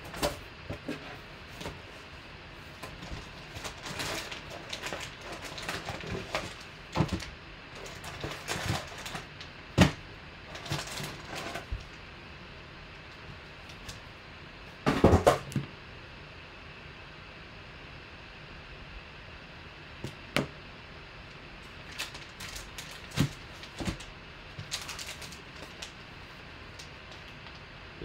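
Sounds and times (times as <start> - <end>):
foil packs crinkling: 2.6 - 12.0, 21.7 - 27.6.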